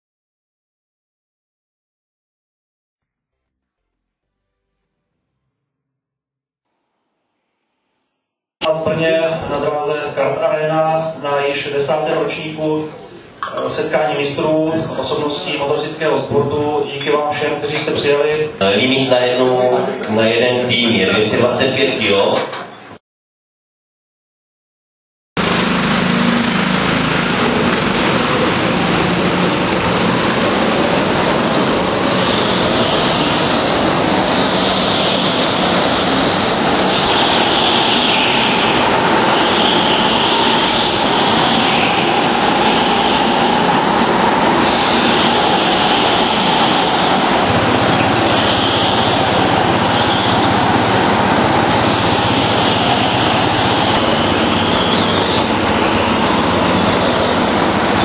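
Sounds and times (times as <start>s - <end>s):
go-kart motors revving: 25.4s - 58.0s.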